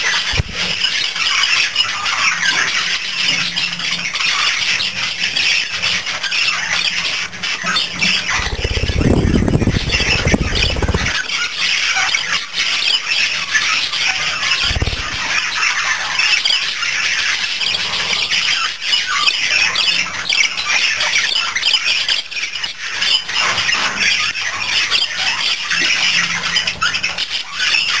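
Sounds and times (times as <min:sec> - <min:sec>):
wings flapping: 0:08.1 - 0:11.4, 0:14.4 - 0:15.6
budgerigars chattering: 0:08.3 - 0:11.3, 0:14.4 - 0:17.3.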